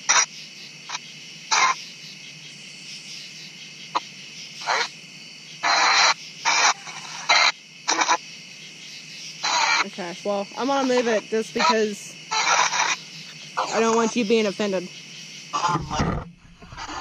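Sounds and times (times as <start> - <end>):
bursts of radio static: 0.0 - 0.3, 0.9 - 1.8, 5.6 - 8.2, 9.4 - 14.4, 15.5 - 17.0
steady hiss: 0.0 - 17.0
clipped radio fragments: 5.6 - 8.2, 10.8 - 14.3.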